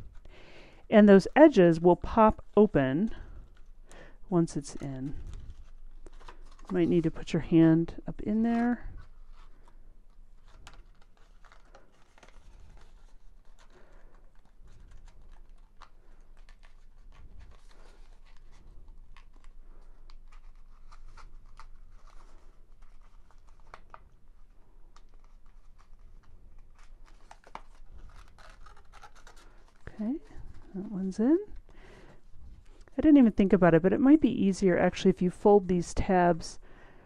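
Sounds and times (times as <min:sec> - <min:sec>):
paper rustling and crinkling: 0:04.7 - 0:33.0.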